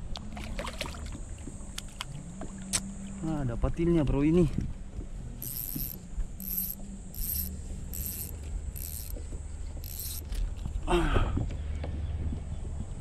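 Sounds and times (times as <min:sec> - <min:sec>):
fishing reel whirring: 0:05.4 - 0:10.7.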